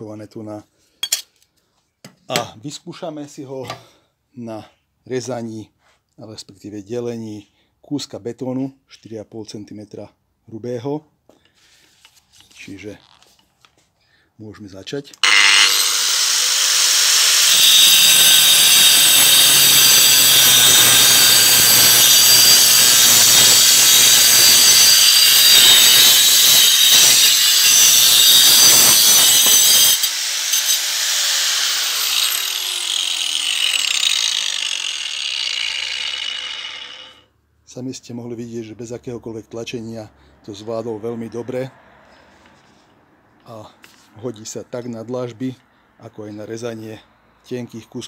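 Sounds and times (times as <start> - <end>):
angle grinder cutting concrete: 15.2 - 37.3.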